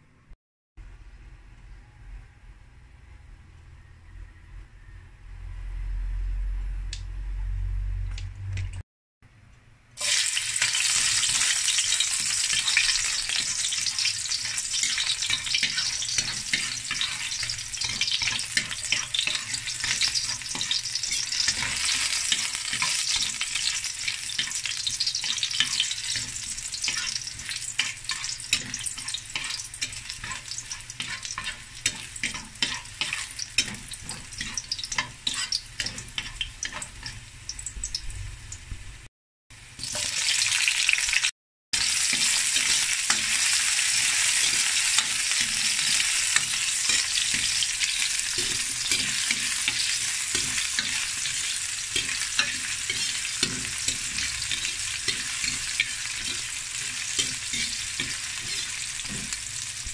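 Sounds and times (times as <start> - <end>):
garlic sizzling in hot oil: 10.0 - 39.0, 39.6 - 59.9
metal ladle scraping pan: 10.9 - 37.2, 42.1 - 59.4.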